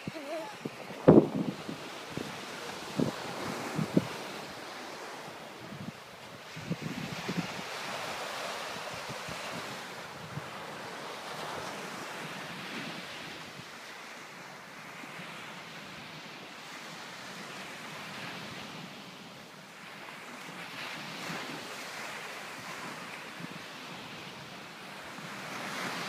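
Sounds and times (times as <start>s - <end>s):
wind buffeting microphone: 0.0s - 13.7s
surf washing onto beach: 0.0s - 26.0s.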